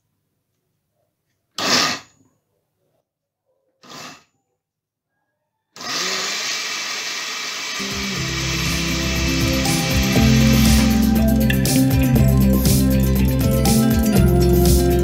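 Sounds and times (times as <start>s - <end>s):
blender chopping vegetables: 5.8s - 12.8s.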